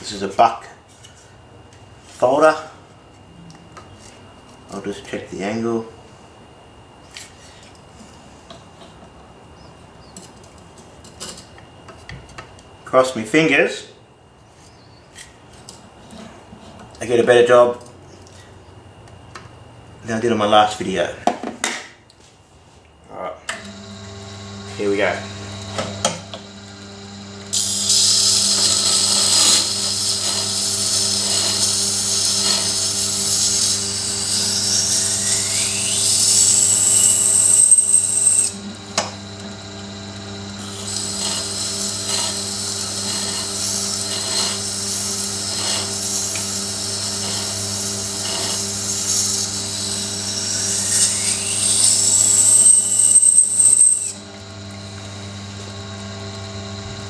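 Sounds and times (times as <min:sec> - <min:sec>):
grinder motor humming: 0:23.5 - 0:57.0.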